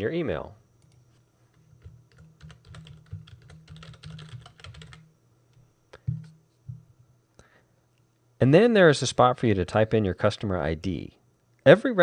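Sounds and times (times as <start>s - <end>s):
keyboard typing: 1.8s - 5.1s.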